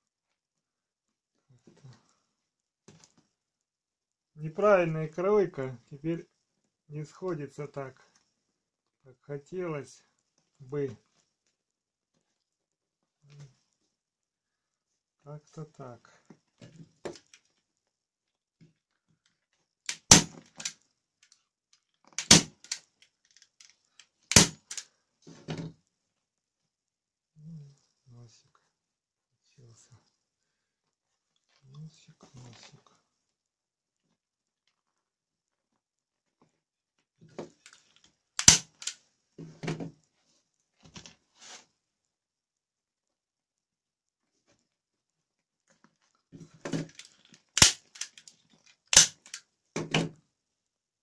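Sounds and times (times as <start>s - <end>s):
sharp click: 22.2s - 22.8s, 24.3s - 24.8s, 38.4s - 39.0s
staple gun clicks: 22.2s - 22.8s, 24.3s - 24.8s, 38.4s - 39.0s, 47.0s - 48.3s, 48.9s - 49.4s
staple gun snapping: 22.2s - 22.8s, 24.3s - 24.8s, 38.4s - 39.0s, 47.0s - 48.3s, 48.9s - 49.4s.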